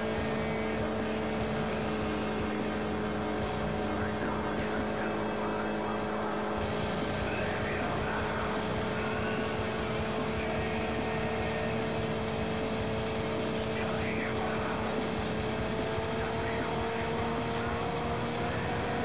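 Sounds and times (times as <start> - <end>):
vehicle engine droning: 0.0 - 19.0
wind and road noise: 0.0 - 19.0.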